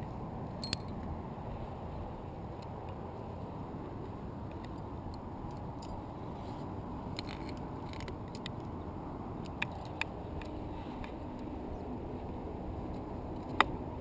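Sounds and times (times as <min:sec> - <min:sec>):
carabiners clicking: 0:07.1 - 0:08.8.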